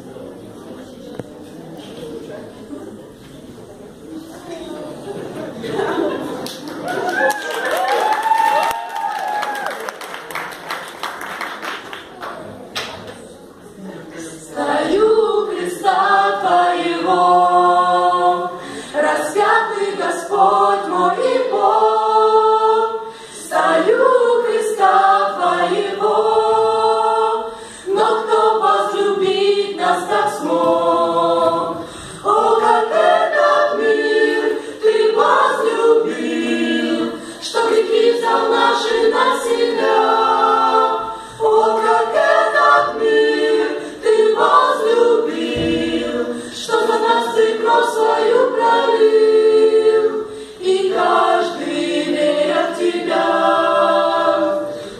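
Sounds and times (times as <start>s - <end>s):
choir singing a cappella: 14.0s - 54.9s.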